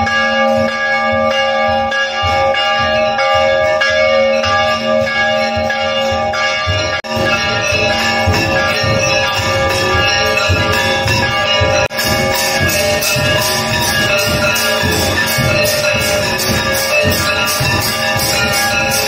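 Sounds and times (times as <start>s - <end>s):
temple bells ringing: 0.0s - 19.0s
uneven low beat: 1.1s - 19.0s.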